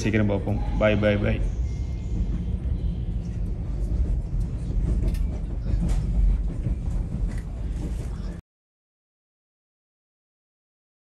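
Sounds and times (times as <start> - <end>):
train rumble: 0.0 - 8.4.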